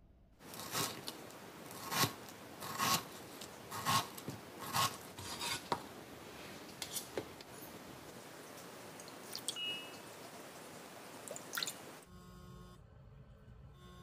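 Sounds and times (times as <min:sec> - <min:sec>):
rasping scraping strokes: 0:00.5 - 0:05.8.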